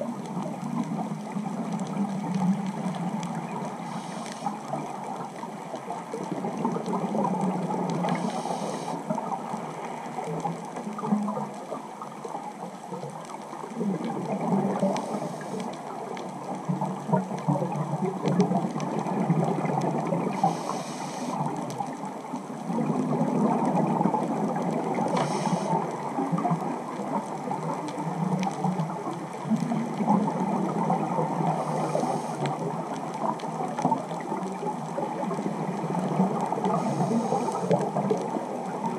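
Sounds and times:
bubbling gurgle of exhaled air: 0.0 - 38.9
regulator hiss: 3.8 - 4.7, 8.1 - 9.1, 14.9 - 15.7, 20.3 - 21.5, 25.1 - 25.8, 31.6 - 32.4, 36.7 - 37.8.

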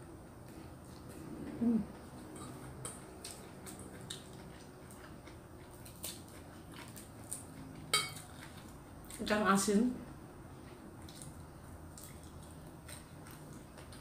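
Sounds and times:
person chewing food: 0.4 - 9.2, 10.6 - 14.0
short hummed voice: 1.2 - 2.0.

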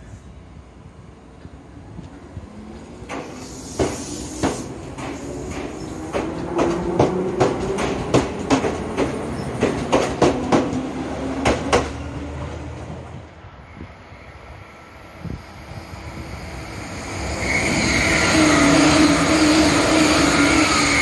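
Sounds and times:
train hum and rumble: 0.0 - 21.0
train wheels clicking over rail joints: 3.0 - 12.0.

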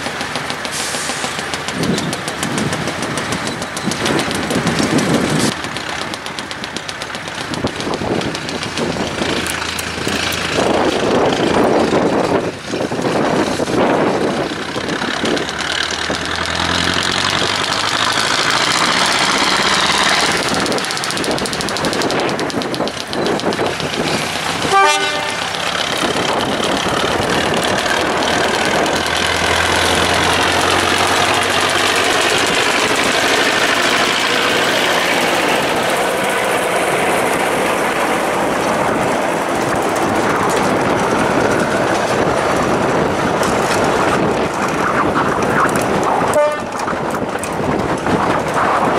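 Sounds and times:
diesel locomotive running: 0.0 - 48.9
rolling train wheels: 0.0 - 48.9
locomotive horn toot: 24.7 - 25.4, 46.3 - 46.8.

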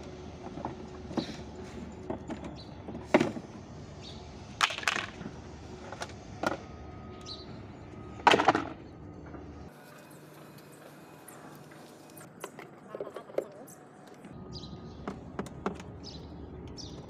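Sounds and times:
plastic toy parts knocking: 4.6 - 5.2.

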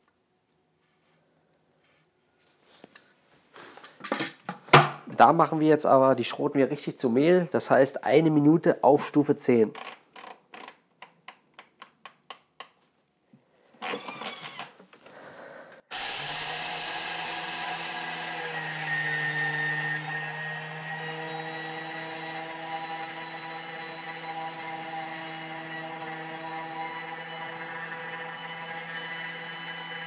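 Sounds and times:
grains hissing in a mill: 15.9 - 18.6
kitchen mixer motor running: 15.9 - 30.0
brief motor whirr: 21.0 - 30.0.

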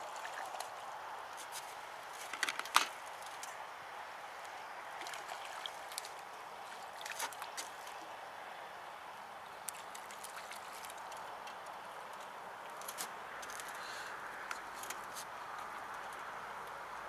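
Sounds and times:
wind over water and reeds: 0.0 - 17.0
fishing tackle clicks and knocks: 2.2 - 3.6.

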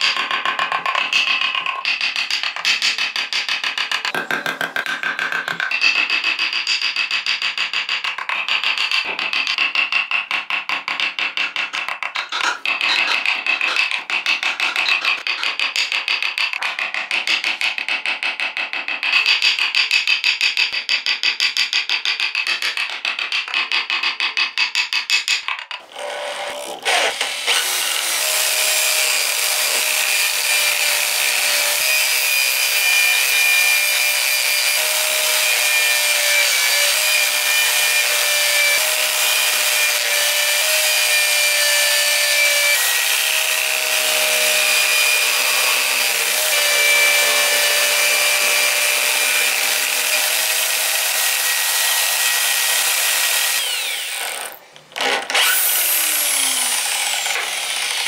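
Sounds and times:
hand tool cutting spinning wood: 0.0 - 24.9, 25.7 - 58.0
electric drill motor whining: 41.6 - 58.0.

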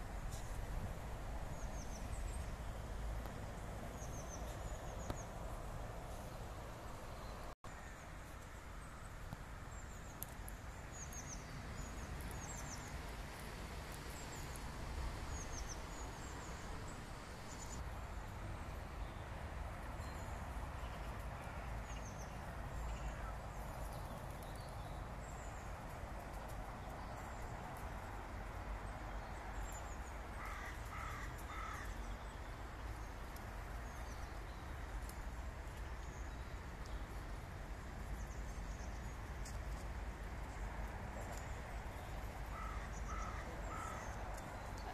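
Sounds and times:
small birds chirping: 1.5 - 5.5, 6.1 - 13.4, 19.9 - 44.9
crow cawing: 30.4 - 32.0, 42.5 - 44.1.

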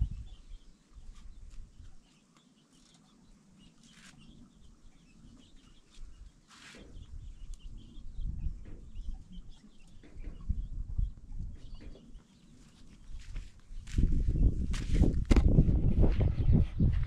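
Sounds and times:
wind rumble on microphone: 0.0 - 2.0, 5.1 - 12.2, 13.0 - 17.0
small birds chirping: 0.0 - 17.0
chickens clucking: 1.0 - 13.5.

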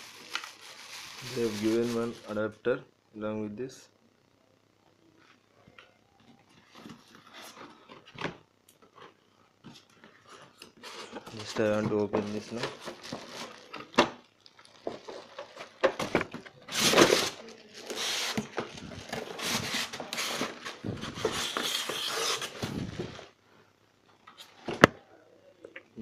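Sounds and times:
packaging rustling and scraping: 0.0 - 2.4, 6.5 - 8.2, 8.8 - 23.4.

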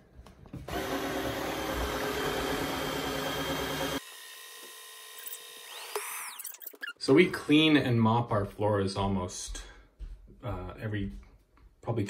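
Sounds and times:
vacuum cleaner motor running: 0.6 - 6.0.

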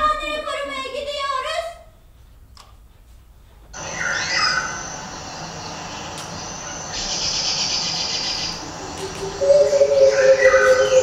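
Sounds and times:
birds chirping: 3.8 - 11.0
pulsing insect chorus: 3.8 - 11.0.

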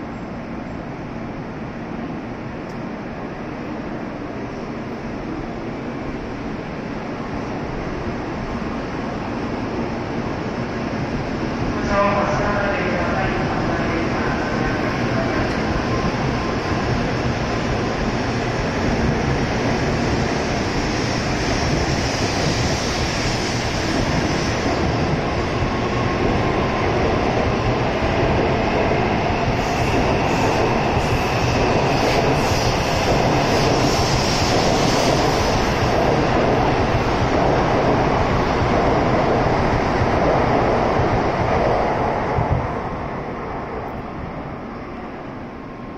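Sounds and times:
train wheels rumbling on rail: 0.0 - 45.9.

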